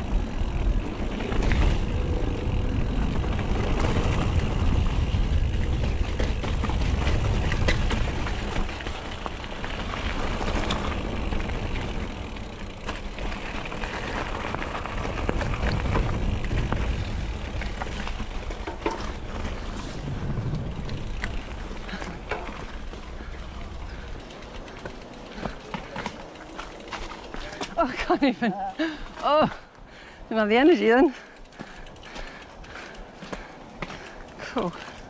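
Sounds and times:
wind buffeting microphone: 0.0s - 12.8s, 13.7s - 24.2s
bike tyre noise: 0.0s - 30.2s, 30.8s - 35.0s
bike rattling: 0.0s - 35.0s.

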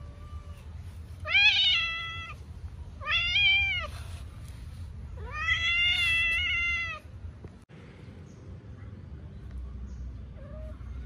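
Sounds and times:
cats meowing: 0.0s - 2.4s, 3.0s - 4.1s, 5.2s - 7.1s.

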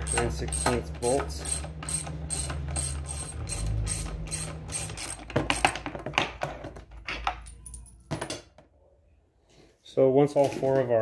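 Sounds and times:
socket ratchet clicking: 0.0s - 5.7s.

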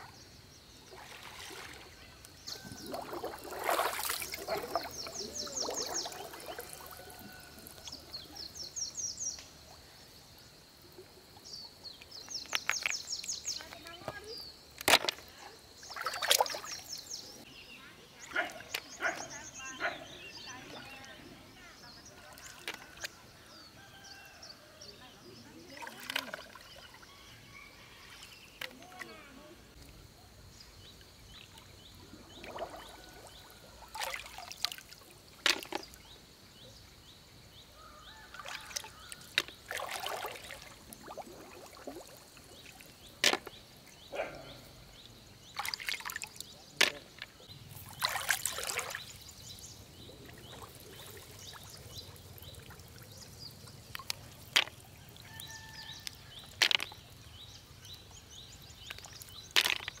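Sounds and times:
hands working in water: 0.8s - 8.7s, 14.8s - 17.2s, 25.6s - 27.1s, 31.4s - 36.2s, 38.3s - 57.4s, 58.5s - 60.0s
water trickling and dripping: 0.8s - 14.3s, 30.9s - 36.2s, 37.8s - 60.0s.

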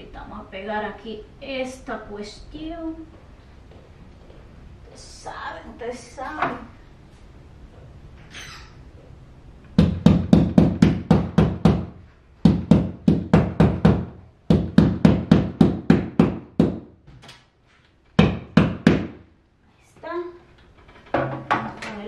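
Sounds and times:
hammer striking nails: 9.8s - 16.9s, 18.2s - 19.3s.

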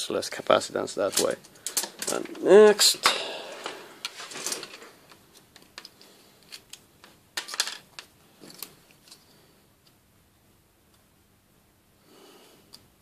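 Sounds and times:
cable rustle and clatter: 1.1s - 2.5s, 3.6s - 9.3s.

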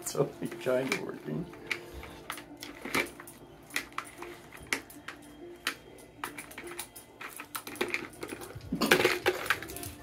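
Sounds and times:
plastic feeder clicking and knocking: 5.6s - 10.0s.

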